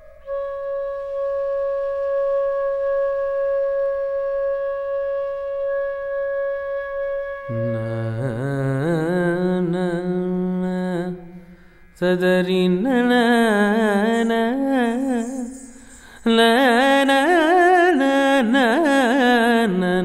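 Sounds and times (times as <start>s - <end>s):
flute long note: 0.0s - 18.4s
person singing ornamented phrases: 7.5s - 20.0s.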